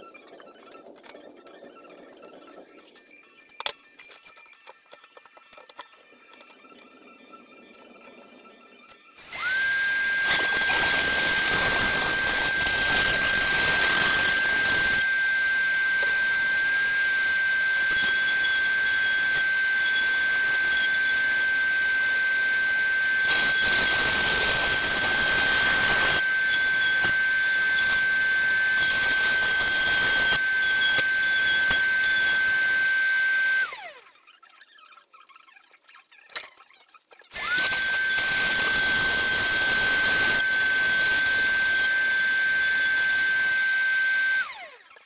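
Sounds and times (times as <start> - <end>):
rotary tool motor whine: 0.0 - 45.0
bit cutting wood: 8.8 - 34.4, 37.3 - 45.0.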